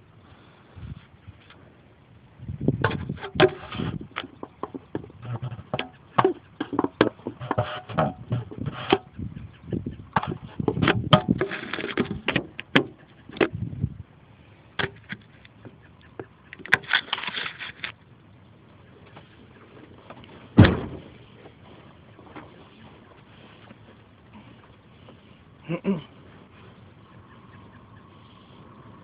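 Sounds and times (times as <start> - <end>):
microphone handling rustles and clicks: 2.6 - 14.0, 19.0 - 25.5
loud thump: 20.6 - 21.2.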